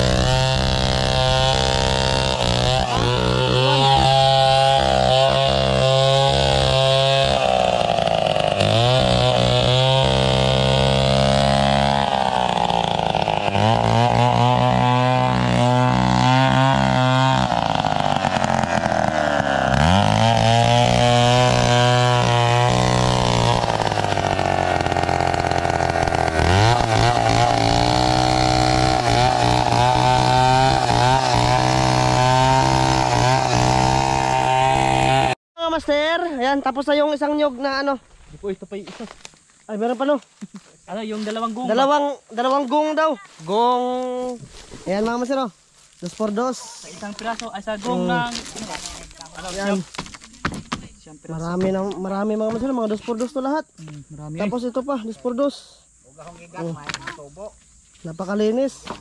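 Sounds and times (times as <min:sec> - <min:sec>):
chainsaw cutting log: 0:00.0 - 0:35.4, 0:44.2 - 0:54.0, 0:58.8 - 0:59.0.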